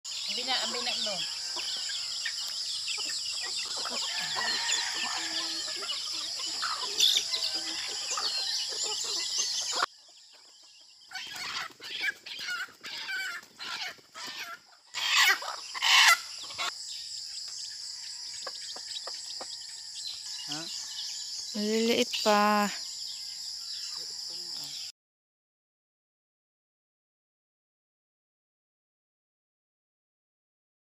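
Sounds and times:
high insect drone: 0.1s - 9.9s, 14.9s - 24.9s
chickens clucking: 0.2s - 21.9s.

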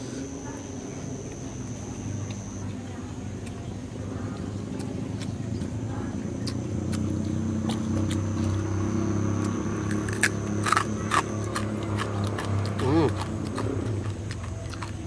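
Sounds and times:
motorcycle engine running: 4.4s - 15.0s.

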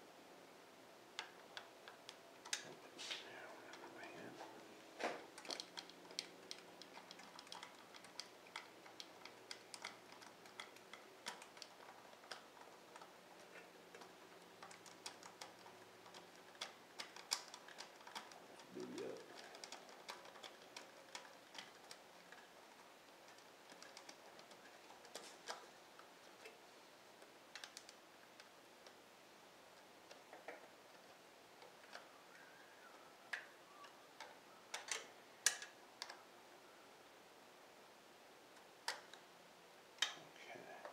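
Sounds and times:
hand tools clicking on metal: 13.9s - 22.5s.

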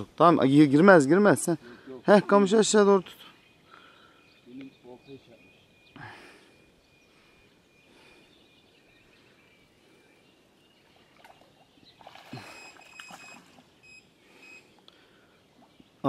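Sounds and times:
thin high call: 12.3s - 14.7s.

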